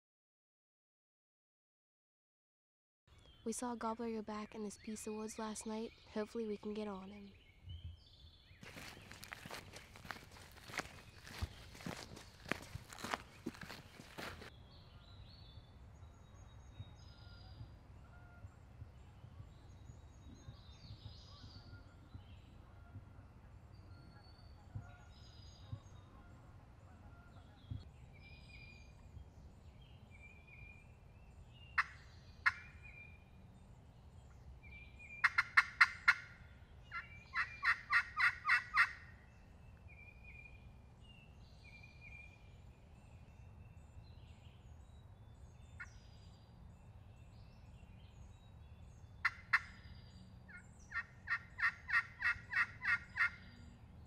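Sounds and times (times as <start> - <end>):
small songbirds chirping faintly: 3.1 - 54.0
wild turkey calling: 31.7 - 33.2, 35.1 - 39.2, 49.2 - 53.5.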